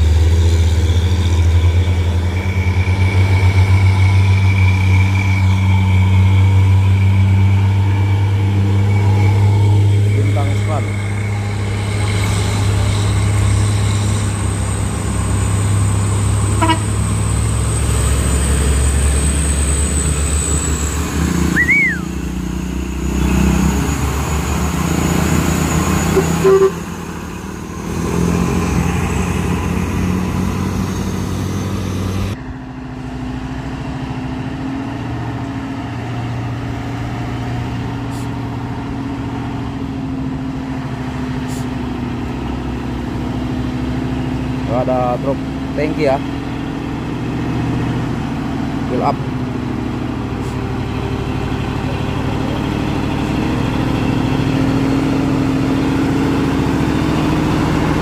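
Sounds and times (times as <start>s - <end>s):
truck engines running: 0.0s - 58.0s
horn toot: 16.5s - 17.0s, 26.1s - 26.9s.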